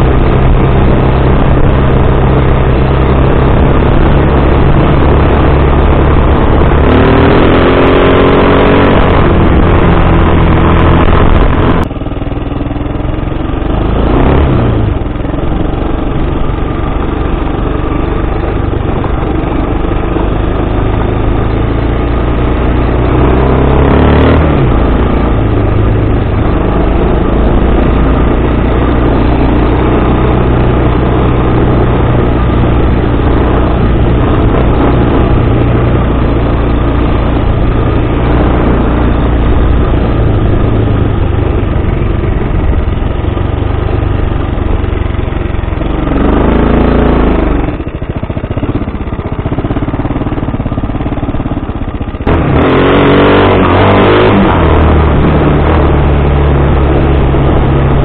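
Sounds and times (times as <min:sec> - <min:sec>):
quad bike engine revving: 0:00.0 - 0:58.0.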